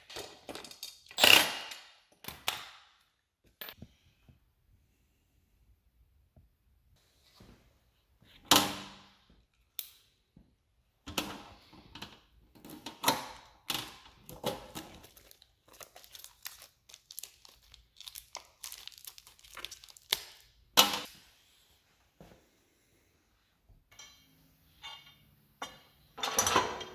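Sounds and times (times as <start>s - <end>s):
plastic packaging crinkling and tearing: 14.7s - 20.6s.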